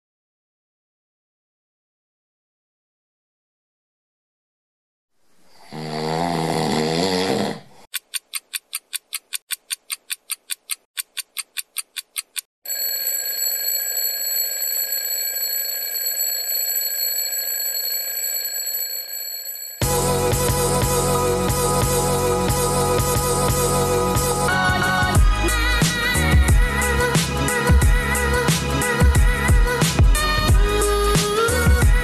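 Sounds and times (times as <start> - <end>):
alarm clock ticking: 7.9 - 19.8
alarm clock bells ringing: 12.7 - 19.9
music: 19.8 - 32.0.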